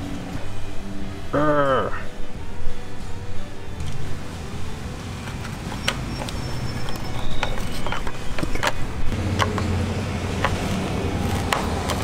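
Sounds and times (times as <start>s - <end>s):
sharp plastic clicks and knocks: 10.4s - 12.0s.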